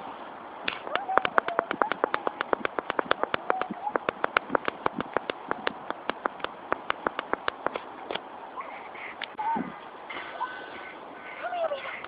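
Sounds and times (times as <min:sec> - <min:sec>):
fast sharp clicks: 0:00.7 - 0:08.2.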